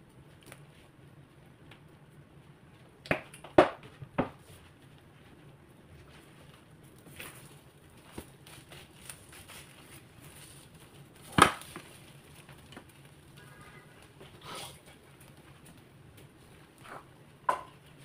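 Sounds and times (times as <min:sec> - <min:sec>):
faint pan crackle: 0:04.8 - 0:18.0.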